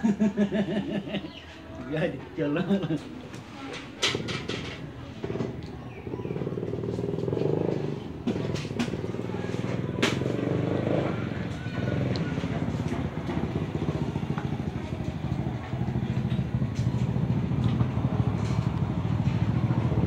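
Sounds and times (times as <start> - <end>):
vehicle engine idling: 5.8 - 20.0.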